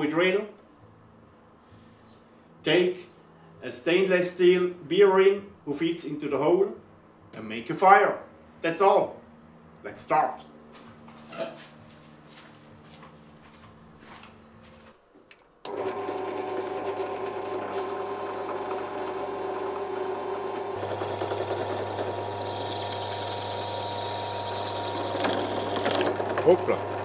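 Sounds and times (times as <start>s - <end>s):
drill press motor humming: 15.6s - 27.0s.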